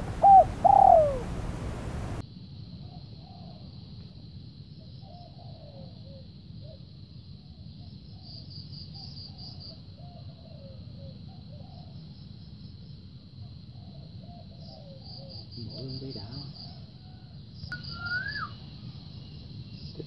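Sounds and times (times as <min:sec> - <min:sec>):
doves cooing: 0:00.0 - 0:02.2
high insect trill: 0:14.6 - 0:20.0.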